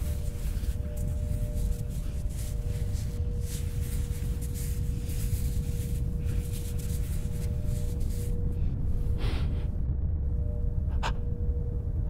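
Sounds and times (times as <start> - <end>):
fabric rustling in fingers: 0.0 - 8.4
low droning rumble: 0.0 - 12.0.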